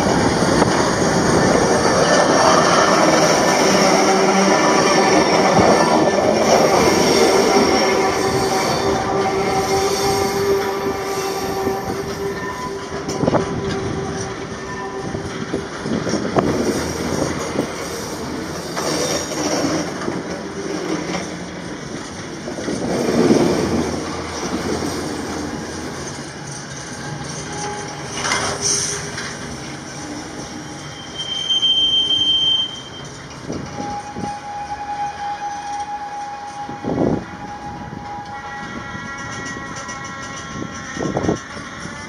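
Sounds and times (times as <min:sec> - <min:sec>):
train knocks: 0:00.0 - 0:31.2, 0:32.9 - 0:42.0
freight train wheels rumbling: 0:00.0 - 0:42.0
high-pitched wheel squeal: 0:00.5 - 0:15.4, 0:29.9 - 0:38.7
low squeal: 0:23.6 - 0:38.7.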